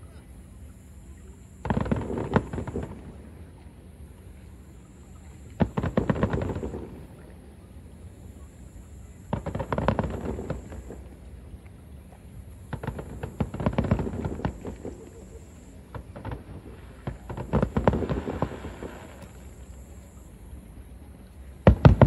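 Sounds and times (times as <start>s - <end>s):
fireworks banging and crackling: 1.6s - 3.3s, 5.5s - 7.1s, 9.2s - 11.1s, 12.7s - 19.5s, 21.6s - 22.0s.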